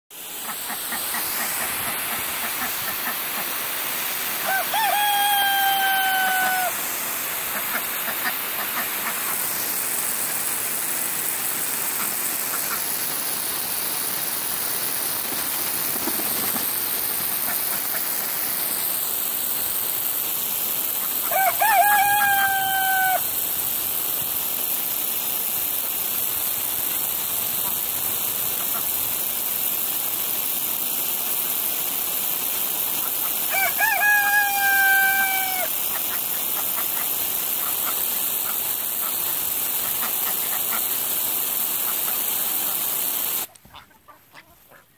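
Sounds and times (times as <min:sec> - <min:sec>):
water spraying from hose: 0:00.0 - 0:43.6
rooster crowing: 0:04.4 - 0:06.8, 0:21.2 - 0:23.3, 0:33.5 - 0:35.8.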